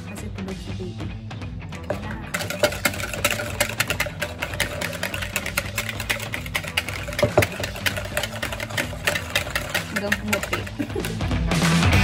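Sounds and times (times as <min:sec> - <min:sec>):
whisk clicking in plastic bowl: 0:01.9 - 0:11.3.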